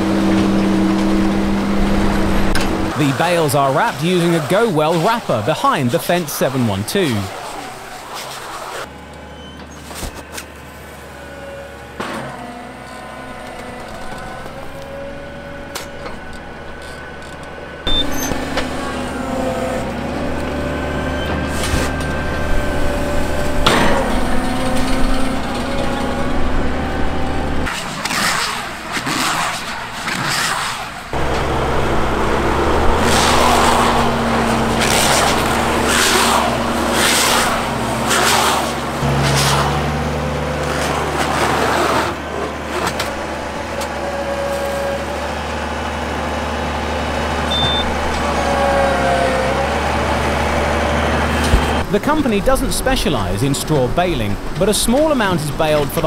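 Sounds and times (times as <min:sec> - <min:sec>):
tractor engine running under load: 0:00.0 - 0:08.0, 0:08.9 - 0:27.8, 0:30.9 - 0:56.0
bale wrapper whining: 0:27.6 - 0:52.0.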